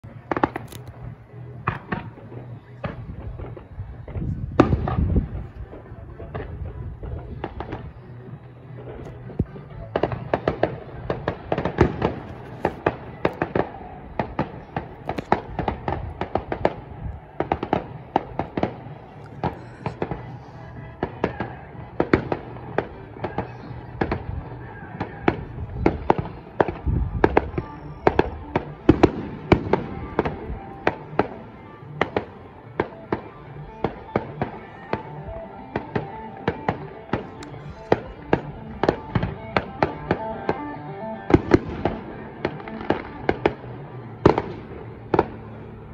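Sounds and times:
fireworks bangs and pops: 0.0 - 40.7, 41.3 - 45.5.

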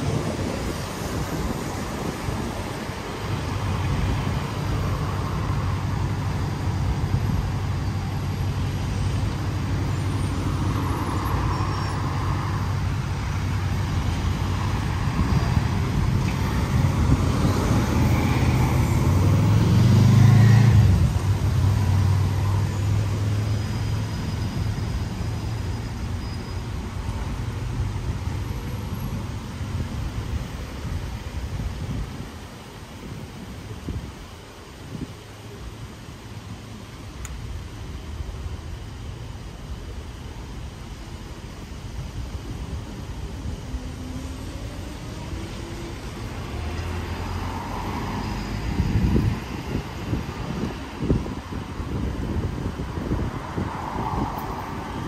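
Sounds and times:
vehicle passing close: 0.0 - 26.1
traffic engine hum: 0.0 - 55.0.

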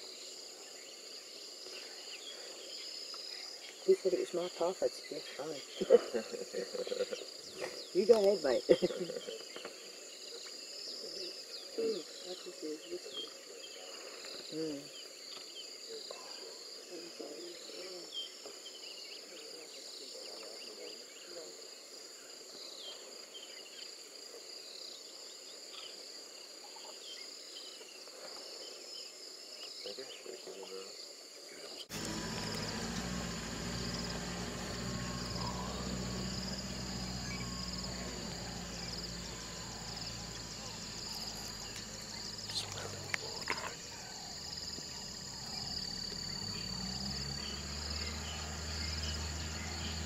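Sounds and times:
high-pitched insect chorus: 0.0 - 50.0
faint chirps: 24.6 - 50.0.

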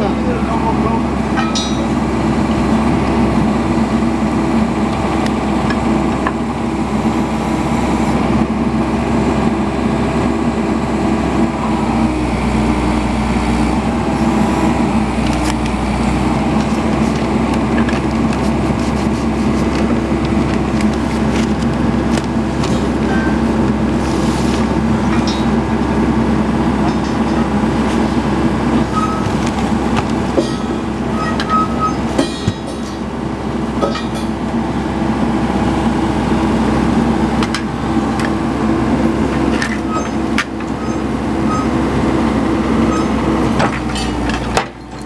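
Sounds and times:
excavator engine running: 0.0 - 45.0.

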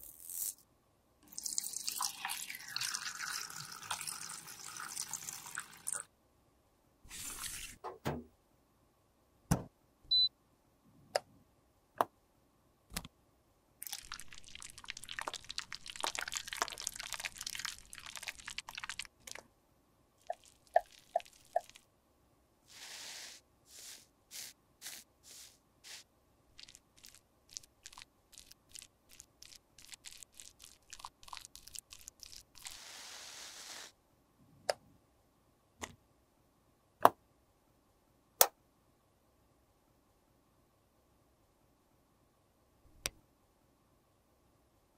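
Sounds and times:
brief hiss: 22.7 - 26.1.

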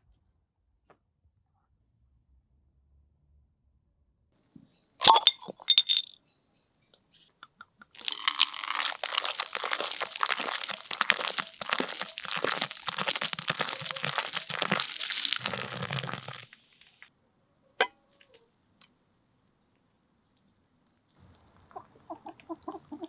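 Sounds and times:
beer pouring and fizzing: 5.0 - 6.0, 7.9 - 17.0.

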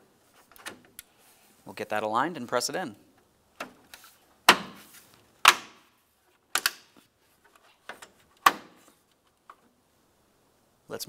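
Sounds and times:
plastic clips snapping into slots: 6.5 - 7.0.

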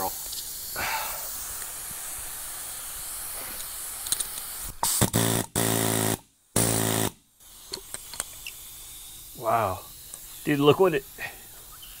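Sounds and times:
pneumatic air hammer rattling: 3.4 - 9.3.

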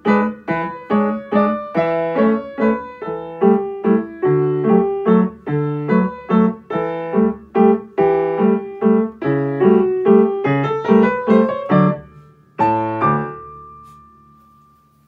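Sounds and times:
upright piano chords: 0.0 - 15.0.

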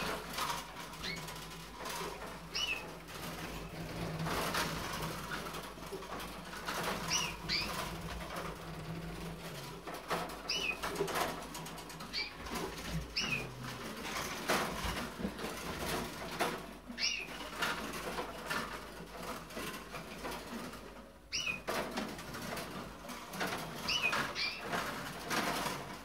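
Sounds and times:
wing flutters: 0.0 - 26.0.

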